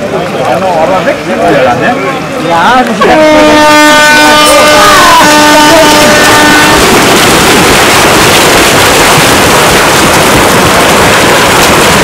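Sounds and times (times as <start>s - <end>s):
swimmers splashing water: 0.0s - 12.0s
steady horn tone: 3.0s - 6.9s.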